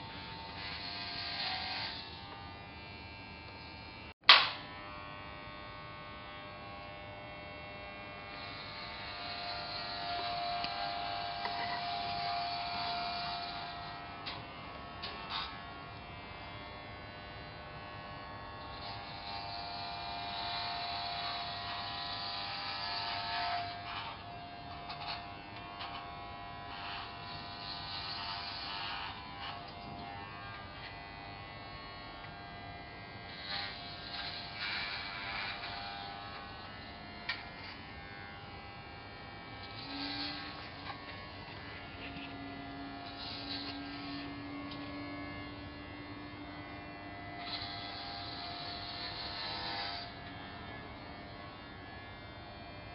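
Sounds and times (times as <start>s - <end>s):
electric hair clippers buzzing: 0.0s - 52.9s
sharp click: 4.3s - 4.6s.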